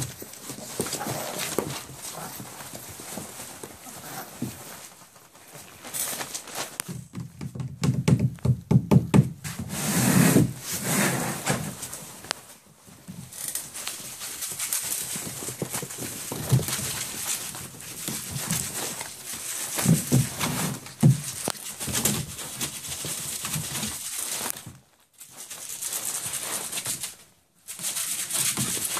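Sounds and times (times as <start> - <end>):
paper rustling and crinkling: 0.0 - 7.3, 9.6 - 28.9
puppy paws knocking and thumping: 0.0 - 9.8, 11.5 - 24.9.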